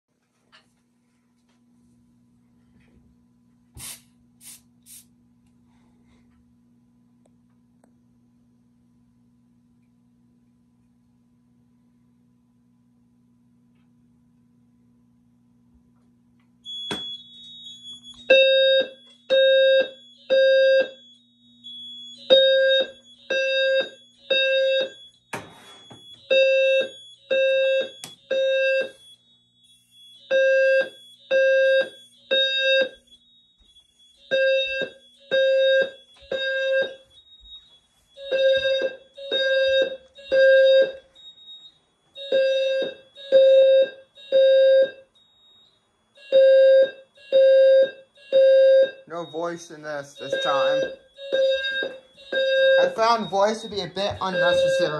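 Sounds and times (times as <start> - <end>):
fire alarm evacuation tone: 16.5 - 54.9.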